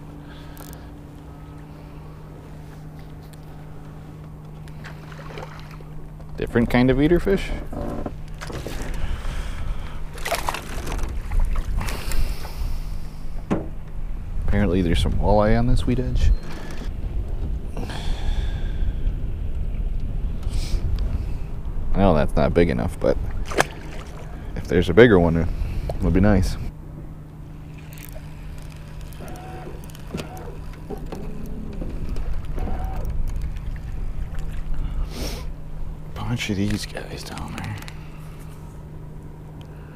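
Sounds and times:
steady low hum: 0.0s - 39.9s
splashy rustles: 10.1s - 12.0s, 23.4s - 24.4s.

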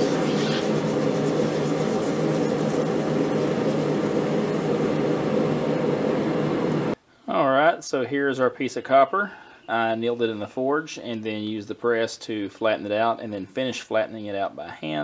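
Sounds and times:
water hissing and bubbling: 0.0s - 5.2s
machine hum: 0.0s - 7.0s.

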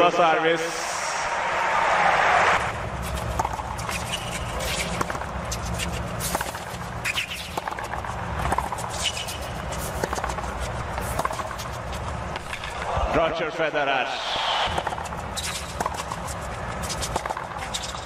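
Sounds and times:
low arena background: 0.0s - 18.0s
tennis ball hits and bounces: 3.1s - 13.0s, 14.7s - 18.0s.

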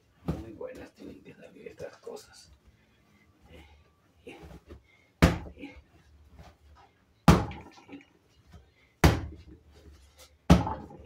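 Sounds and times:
dough thudding on wooden countertop: 7.3s - 7.8s, 9.0s - 9.6s, 10.5s - 11.0s.

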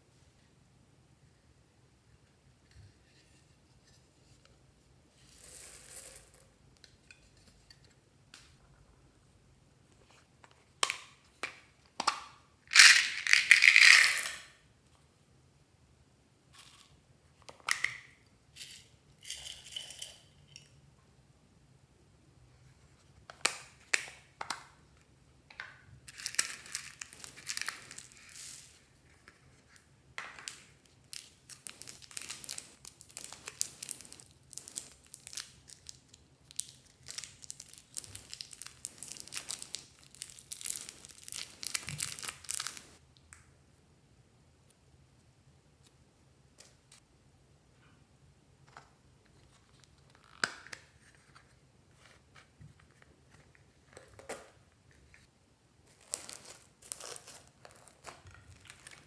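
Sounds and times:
plastic wrapper crinkling: 26.1s - 28.8s, 30.5s - 43.0s, 55.9s - 59.0s.

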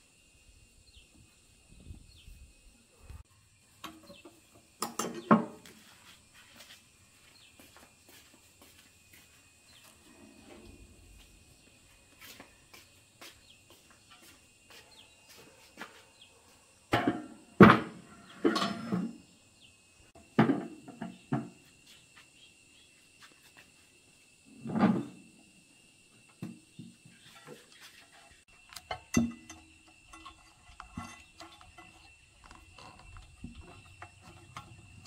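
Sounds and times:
hard objects knocking and clunking: 3.8s - 5.6s.

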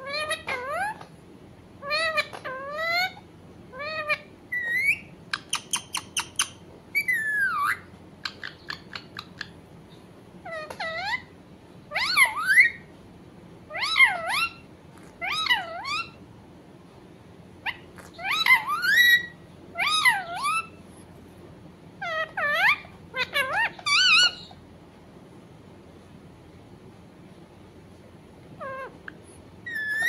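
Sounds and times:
parakeet calling: 0.0s - 1.1s, 1.8s - 9.6s, 10.4s - 12.9s, 13.7s - 16.2s, 17.6s - 20.8s, 22.0s - 24.6s, 28.6s - 30.0s.

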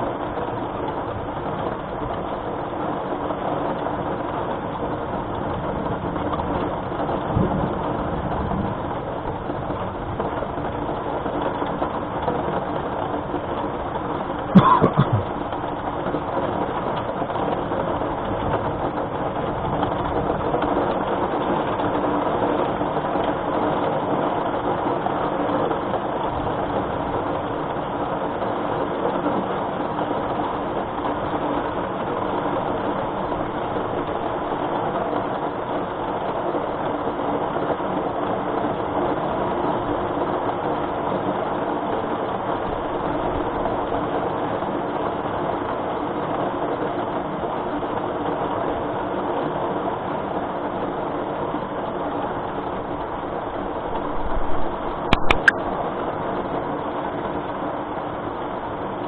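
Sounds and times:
steady rain falling: 0.0s - 59.0s.

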